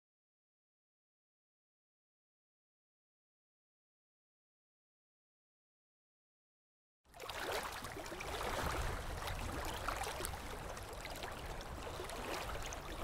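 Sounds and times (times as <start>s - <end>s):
water lapping and trickling: 7.1s - 13.0s.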